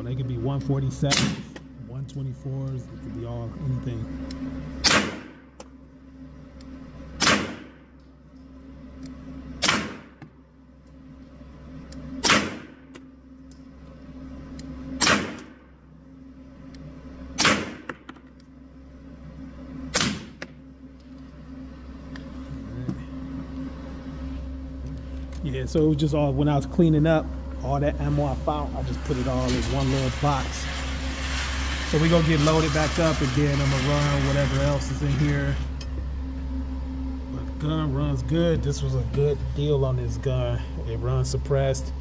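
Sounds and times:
suppressed pistol shots: 0:04.8 - 0:05.3, 0:07.2 - 0:07.7, 0:09.6 - 0:10.0, 0:12.2 - 0:12.7, 0:15.0 - 0:15.4, 0:17.4 - 0:18.0.

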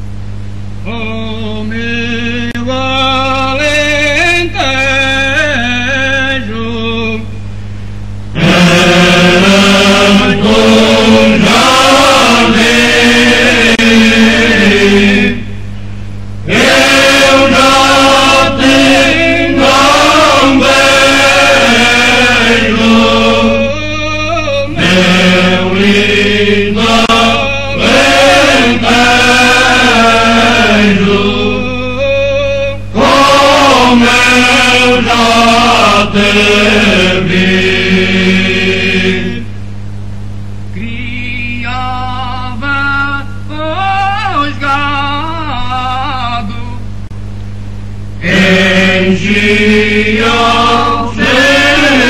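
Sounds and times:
steady low drone: 0:00.0 - 0:41.2
chanted vocal music: 0:00.8 - 0:07.4, 0:08.3 - 0:15.7, 0:16.4 - 0:39.6, 0:40.7 - 0:46.9, 0:48.2 - 0:52.0.

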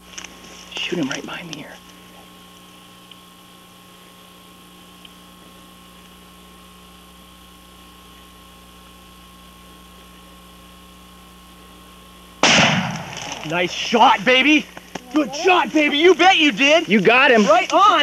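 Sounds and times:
faint steady hum: 0:00.0 - 0:18.0
small tick: 0:05.0 - 0:05.2.

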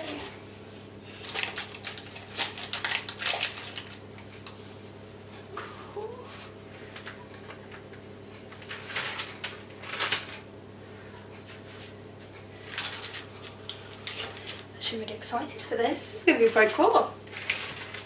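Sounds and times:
steady low hum: 0:00.0 - 0:18.0
plastic packet crinkling: 0:01.2 - 0:04.2, 0:08.5 - 0:10.5, 0:12.6 - 0:14.7, 0:17.3 - 0:18.0.

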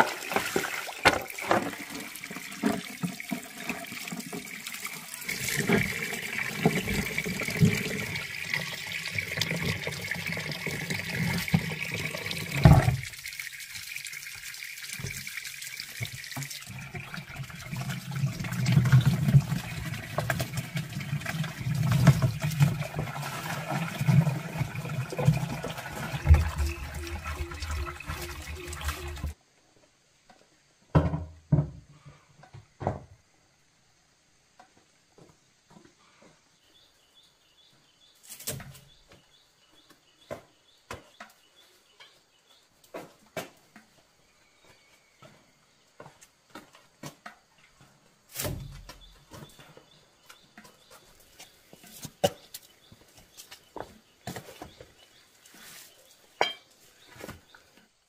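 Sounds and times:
water gushing from a hose: 0:00.0 - 0:29.4
water splashing into a bucket: 0:00.0 - 0:29.4.

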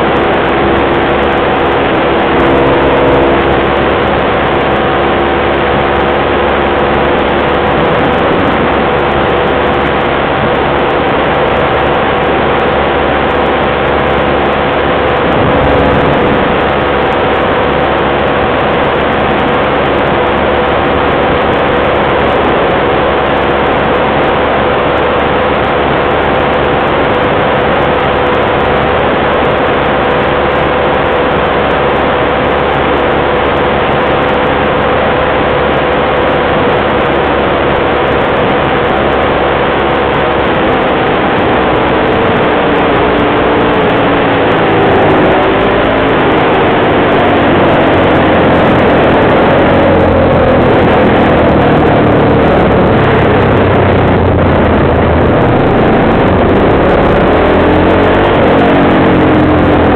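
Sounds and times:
atv engine droning: 0:00.0 - 0:59.9
wind rushing over microphone: 0:00.0 - 0:59.9.

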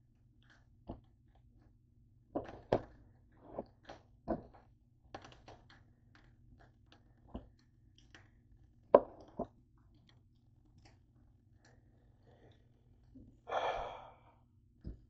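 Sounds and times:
knocks and taps on counter: 0:09.0 - 0:09.5
breathy sigh: 0:13.5 - 0:14.4.

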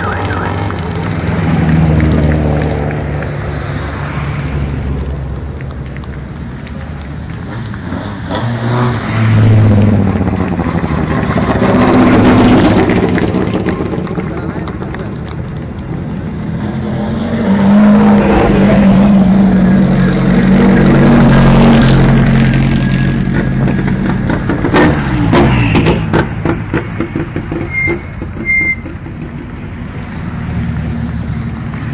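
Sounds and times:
rally car engines passing: 0:00.0 - 0:31.9.

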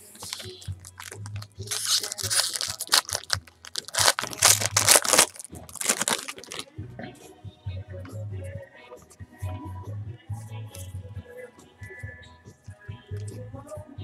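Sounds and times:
foil wrapper crinkling and tearing: 0:00.0 - 0:06.6.

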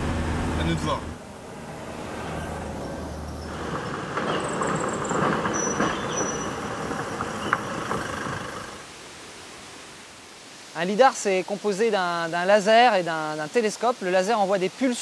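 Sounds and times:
vehicle engine hum: 0:00.0 - 0:08.8.

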